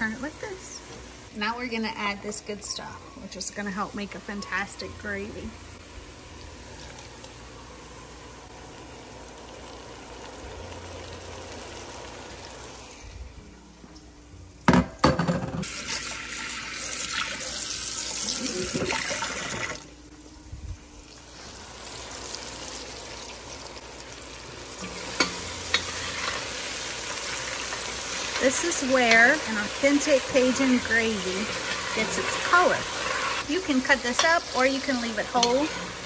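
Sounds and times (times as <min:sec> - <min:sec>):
onions sizzling in a pot: 0:00.0 - 0:14.2, 0:15.6 - 0:36.0
tap water running into a bowl: 0:15.6 - 0:19.9
spoon stirring a pot: 0:24.9 - 0:26.5, 0:31.5 - 0:36.0.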